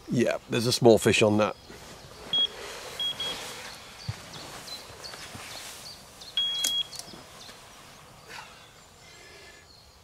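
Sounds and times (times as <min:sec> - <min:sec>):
bite alarm beeping: 0:02.3 - 0:03.4, 0:06.4 - 0:07.0.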